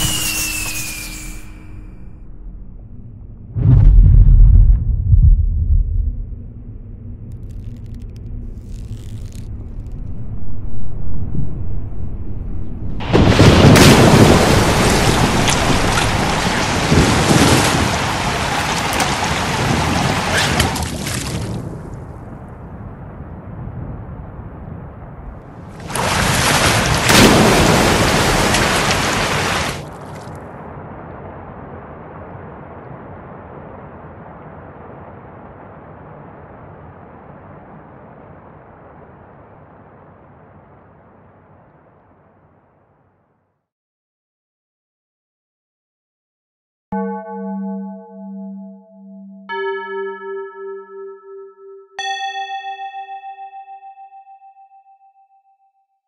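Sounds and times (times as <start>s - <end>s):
low thunder rumble: 2.3s - 7.3s
heavy rain: 13.0s - 22.3s, 25.6s - 41.6s.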